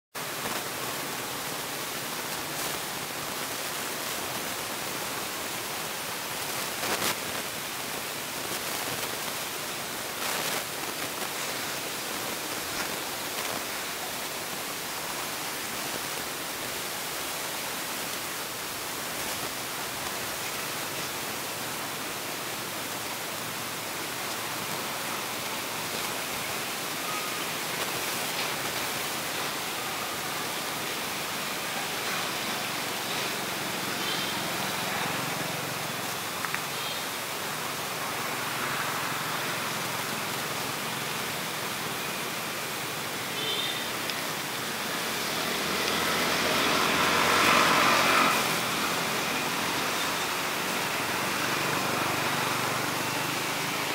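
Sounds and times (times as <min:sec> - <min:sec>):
outdoor background hiss: 0:00.1 - 0:53.9.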